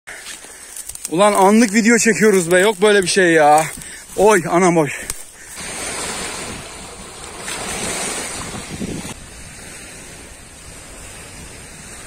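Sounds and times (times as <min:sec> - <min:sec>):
wind buffeting microphone: 0:05.5 - 0:12.0
waves washing over pebble shore: 0:05.6 - 0:12.0.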